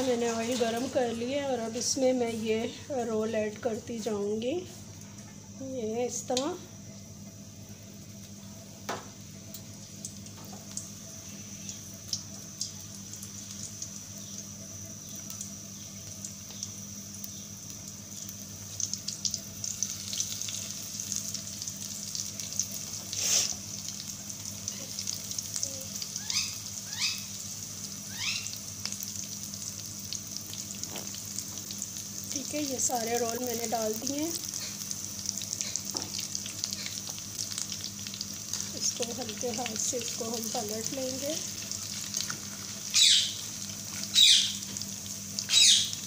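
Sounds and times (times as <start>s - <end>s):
deep-frying sizzle and crackling: 0.0s - 46.0s.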